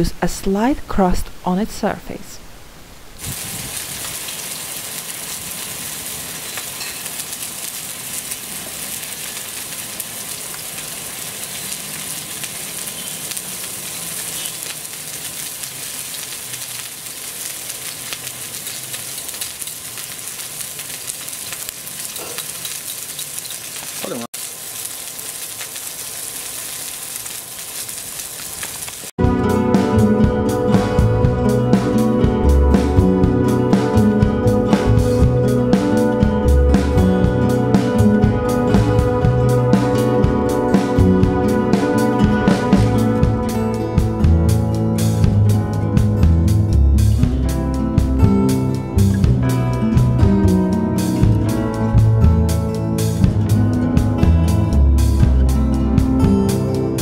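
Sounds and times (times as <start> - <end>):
fish sizzling in hot oil: 3.2 - 29.1
music: 29.2 - 57.0.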